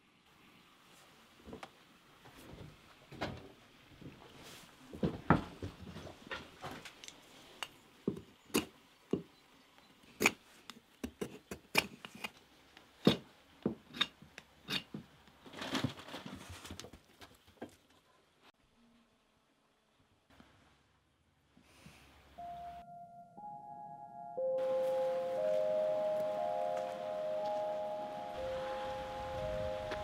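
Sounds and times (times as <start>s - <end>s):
knife scraping wooden block: 11.1s - 12.4s, 13.8s - 15.0s.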